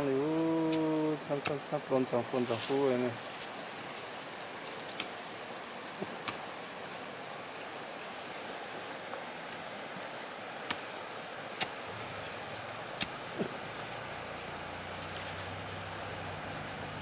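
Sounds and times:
stream flowing: 0:00.0 - 0:17.0
hoe striking soil: 0:00.6 - 0:01.6, 0:06.0 - 0:06.6, 0:10.6 - 0:13.7.

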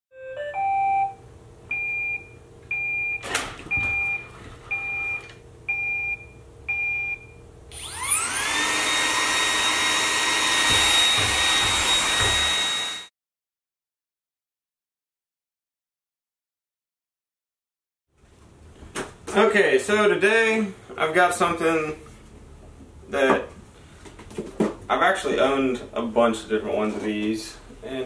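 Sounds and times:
robot vacuum motor whine: 0:07.7 - 0:13.1.

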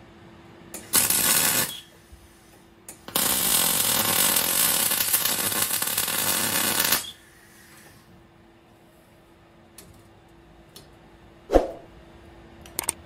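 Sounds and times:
arc welding crackle: 0:00.8 - 0:02.0, 0:02.9 - 0:07.2.

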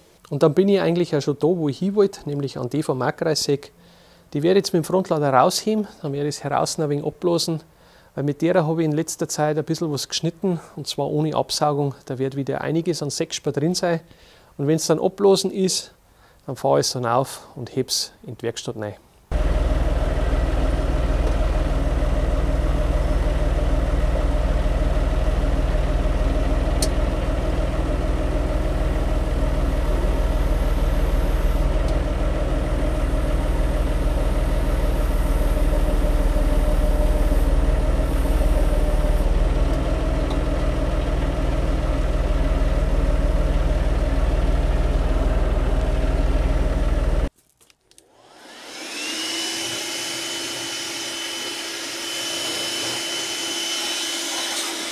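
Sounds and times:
handheld blower whining: 0:19.3 - 0:47.3, 0:48.0 - 0:54.9
tractor engine running: 0:19.3 - 0:47.3.

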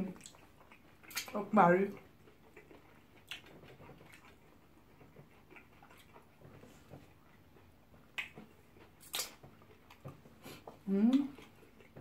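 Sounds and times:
soft chewing: 0:00.0 - 0:12.0
sharp mouth smacks: 0:09.0 - 0:09.4.

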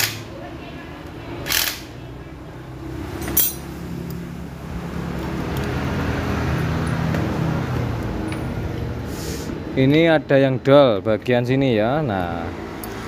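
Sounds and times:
sharp metal clink: 0:03.2 - 0:03.8.

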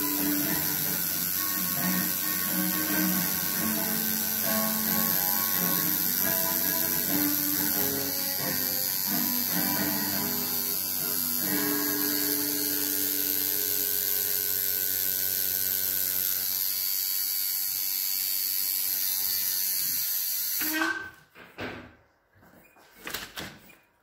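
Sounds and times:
music: 0:00.0 - 0:14.1
tattoo machine buzzing: 0:00.0 - 0:21.2.

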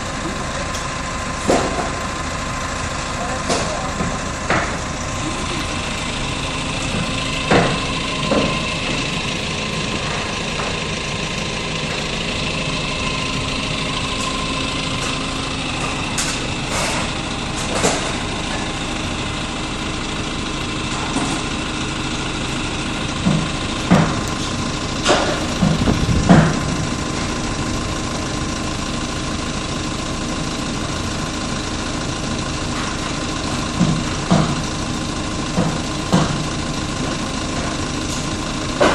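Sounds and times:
forklift engine idling: 0:00.0 - 0:38.9
metal knocks and clanks: 0:06.8 - 0:09.1, 0:14.1 - 0:18.8, 0:23.1 - 0:27.3.

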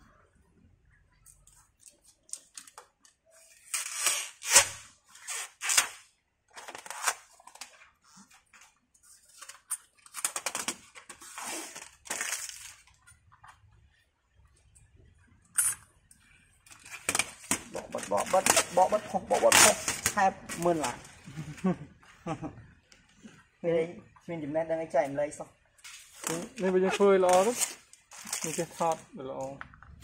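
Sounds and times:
plastic film crackling: 0:16.6 - 0:21.6, 0:25.8 - 0:29.6.

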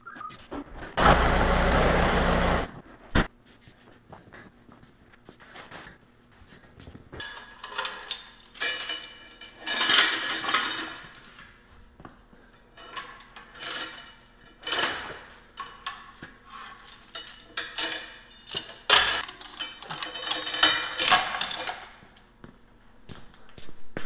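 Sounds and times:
metal tools clanking: 0:07.2 - 0:11.2, 0:12.8 - 0:22.2.

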